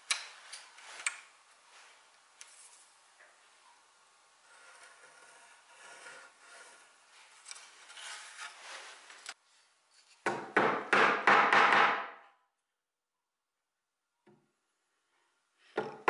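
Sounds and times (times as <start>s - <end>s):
pencil scratching on wood: 4.5s - 6.9s
chisel knocking and scraping: 15.8s - 16.0s.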